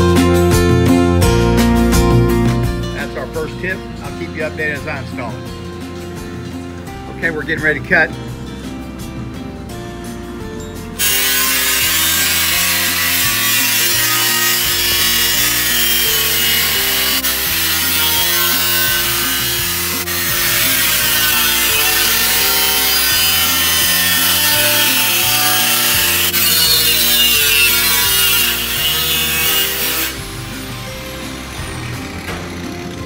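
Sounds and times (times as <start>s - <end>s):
background music: 0.0s - 33.0s
angle grinder cutting steel: 11.0s - 33.0s.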